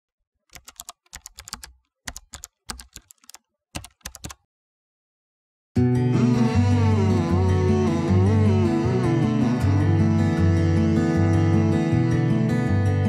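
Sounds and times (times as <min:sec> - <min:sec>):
keyboard typing clicks: 0:00.5 - 0:04.4
music: 0:05.8 - 0:13.0.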